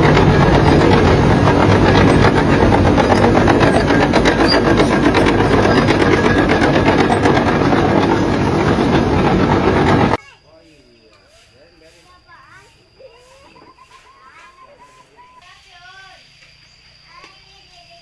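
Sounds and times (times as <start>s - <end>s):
diesel engine running: 0.0s - 10.2s
steel tracks clanking: 0.0s - 10.2s.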